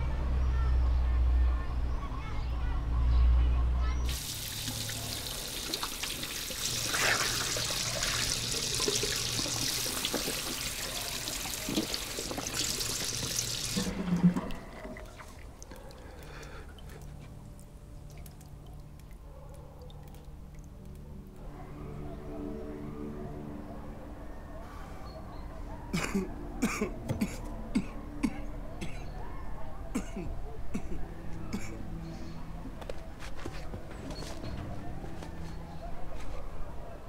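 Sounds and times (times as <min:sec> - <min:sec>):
tap water splashing into metal basin: 0:04.1 - 0:14.6
hands washing in water: 0:04.1 - 0:16.0.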